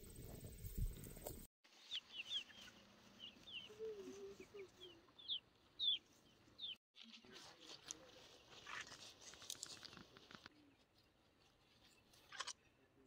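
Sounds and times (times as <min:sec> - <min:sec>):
faint rustle of goats grazing: 0:00.0 - 0:06.4, 0:07.0 - 0:13.0
chicks chirping and peeping: 0:01.9 - 0:06.0.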